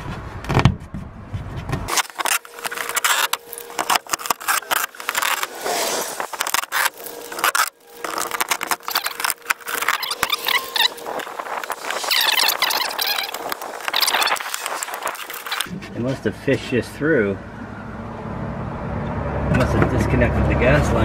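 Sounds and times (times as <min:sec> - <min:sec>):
clicks and scrapes: 0:00.0 - 0:16.7
short squeaks: 0:01.6 - 0:16.0.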